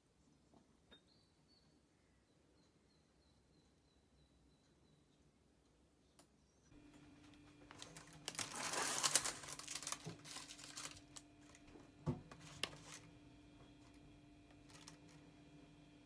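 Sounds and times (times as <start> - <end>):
thin plastic crinkling: 6.9 - 15.4.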